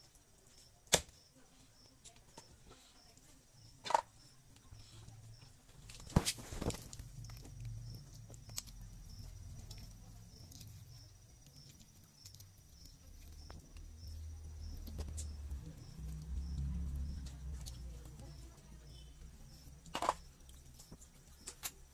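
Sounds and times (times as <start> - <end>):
rustling handling noise: 4.6 - 13.9.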